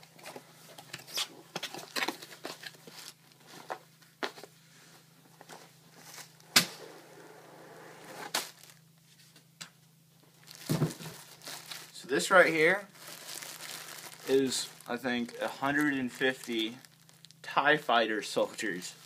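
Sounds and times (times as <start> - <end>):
plastic bag crinkling: 8.4 - 8.9, 10.3 - 17.5.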